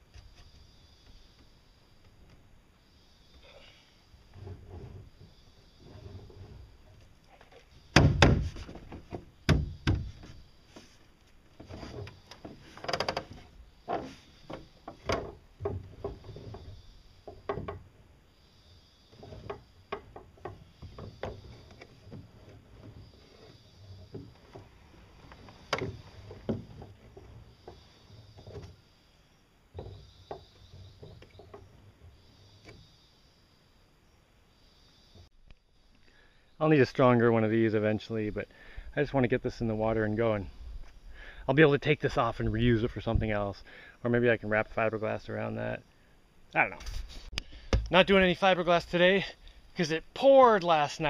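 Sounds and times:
knocks and clunks from boat rudder: 4.4s - 17.9s, 19.1s - 28.8s, 29.7s - 31.8s.

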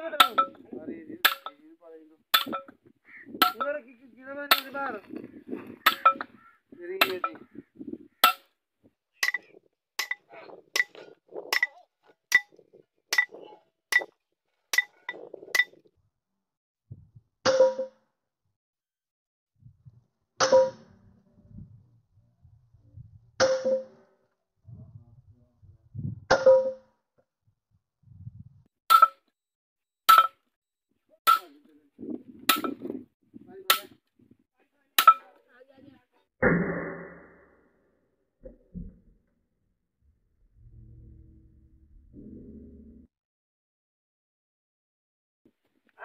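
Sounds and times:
hammer striking metal: 0.2s - 0.6s, 1.3s - 1.6s, 2.4s - 2.7s, 4.5s - 4.8s, 5.9s - 6.3s, 10.0s - 10.2s, 23.4s - 24.0s.

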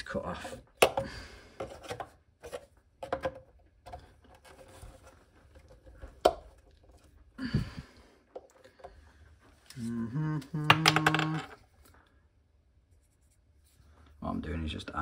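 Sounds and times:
plastic pipe clicks and knocks: 0.7s - 4.5s, 5.5s - 7.1s.

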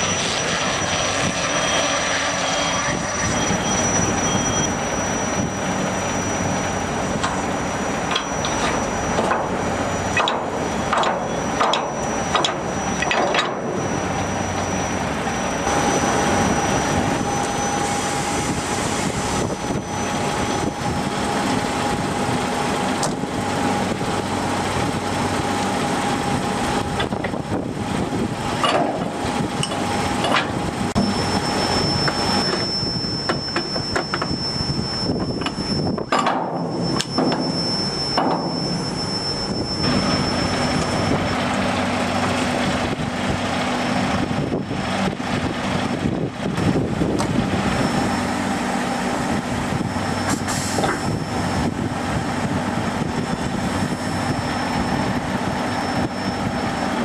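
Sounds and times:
heavy truck running: 0.0s - 57.0s
thin steady whine: 0.0s - 57.0s
knocks and clatters: 10.2s - 13.6s.

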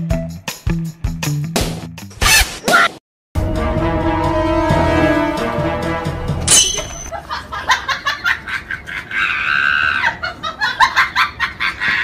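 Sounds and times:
background music: 3.4s - 7.1s
sharp high-pitched sound effect: 6.5s - 7.1s
held high cry: 9.1s - 10.2s.

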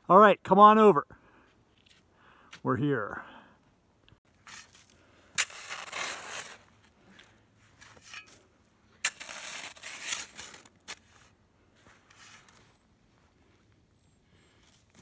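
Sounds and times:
snow shovel crunching and scraping: 4.3s - 13.6s.

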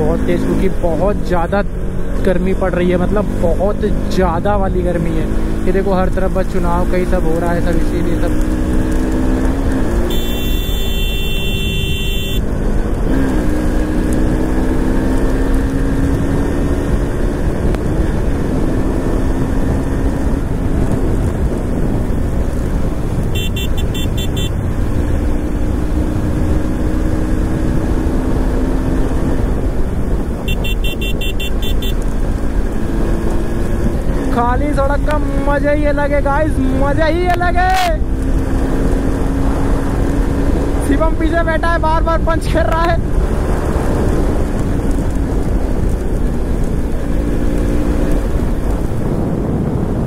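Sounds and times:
motorcycle engine running: 3.0s - 37.2s
wind rumble on microphone: 12.4s - 50.0s.

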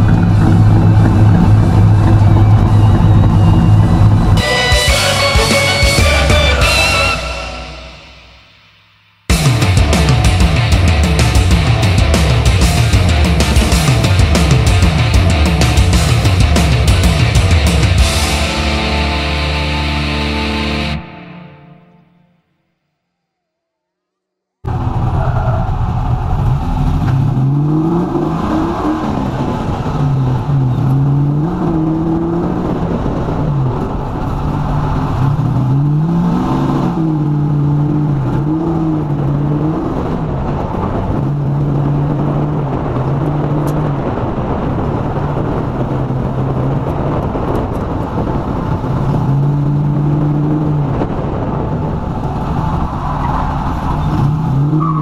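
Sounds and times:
engine revving: 0.0s - 8.2s, 9.3s - 21.1s, 24.6s - 55.0s
tire noise: 0.0s - 55.0s
wind noise: 24.7s - 55.0s.

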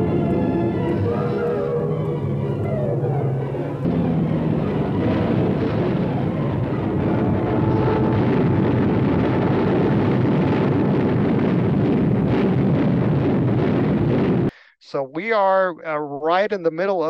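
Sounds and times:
aircraft engines rumbling: 0.0s - 14.5s
anti-aircraft fire: 0.0s - 14.6s.

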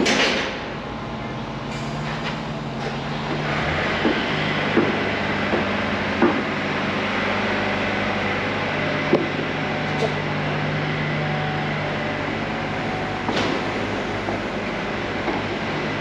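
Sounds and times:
construction machinery drone: 0.0s - 16.0s
sharp knocks: 4.0s - 6.5s.

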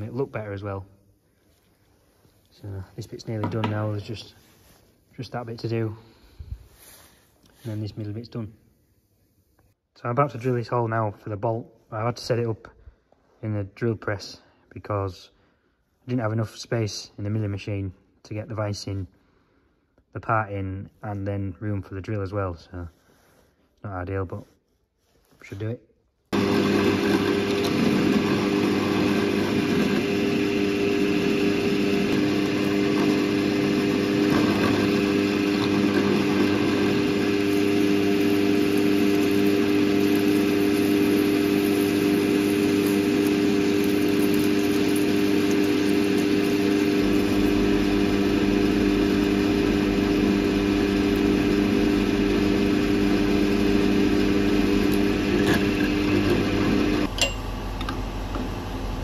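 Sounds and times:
drill cutting into metal: 26.4s - 57.1s
drill press motor hum: 26.4s - 59.0s.

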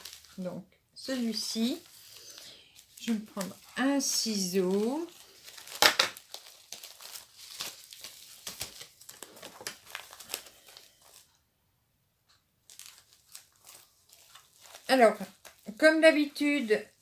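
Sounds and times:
plastic packet crinkling: 0.0s - 11.4s, 12.6s - 16.9s.

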